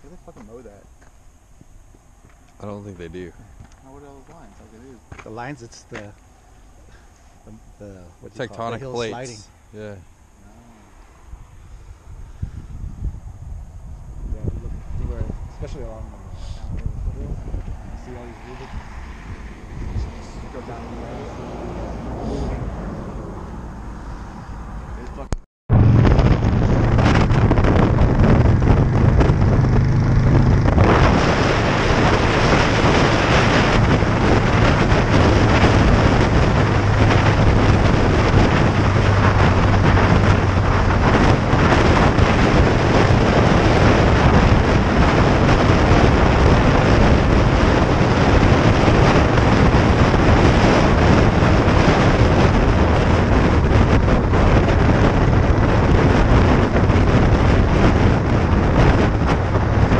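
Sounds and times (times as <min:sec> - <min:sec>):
wind buffeting microphone: 0:00.0 - 0:59.9
motorcycle engine running: 0:25.7 - 0:59.9.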